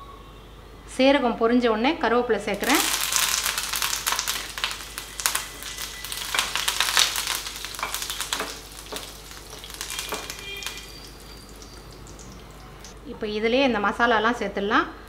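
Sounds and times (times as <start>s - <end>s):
spices sizzling in hot oil: 2.5s - 13.0s
spatula stirring in pan: 3.1s - 12.5s.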